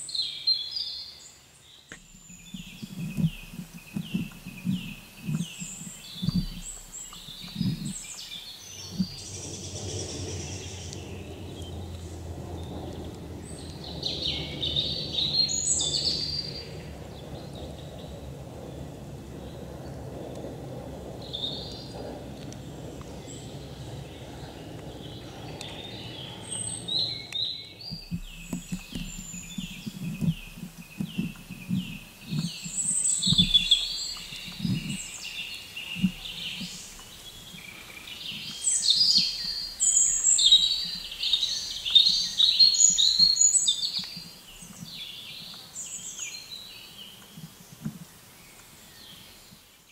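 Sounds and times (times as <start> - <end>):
birds chirping: 0.0 - 49.9
soft low thumps: 1.9 - 15.4, 27.8 - 35.2
steady low rumble: 1.9 - 43.4.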